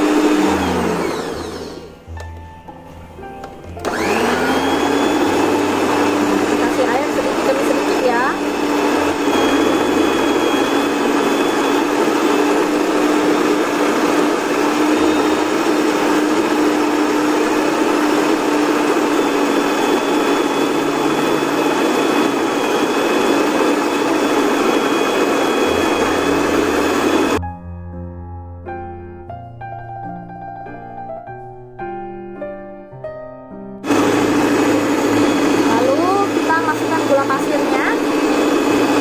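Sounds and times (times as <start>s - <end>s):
stand mixer motor humming: 0.0s - 1.9s, 3.8s - 27.4s, 33.8s - 39.0s.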